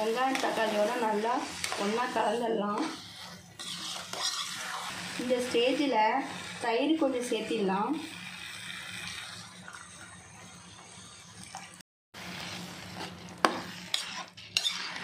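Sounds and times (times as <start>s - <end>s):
spoon scraping a frying pan: 0.0s - 6.6s, 8.0s - 9.9s, 12.3s - 15.0s.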